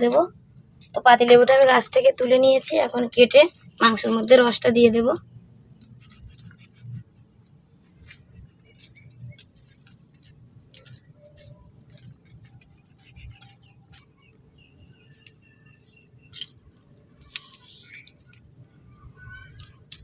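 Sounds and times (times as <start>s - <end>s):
faint bird chirps: 10.6s - 19.9s.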